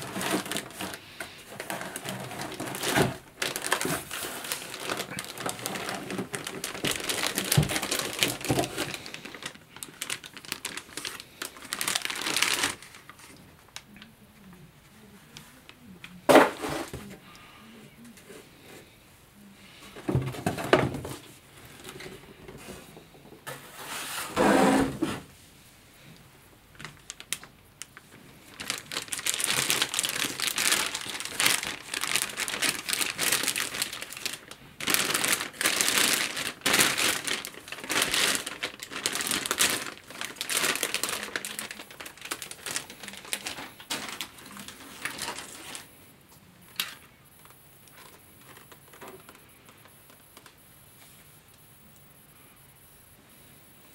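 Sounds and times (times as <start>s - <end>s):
plastic bag crinkling: 0.0s - 14.0s, 26.7s - 46.0s, 46.7s - 50.6s.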